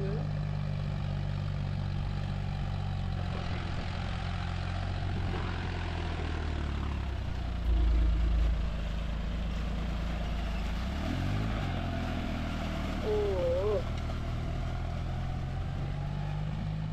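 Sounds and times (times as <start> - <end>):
tractor diesel engine running: 0.0 - 16.9
low rumble: 4.9 - 10.7.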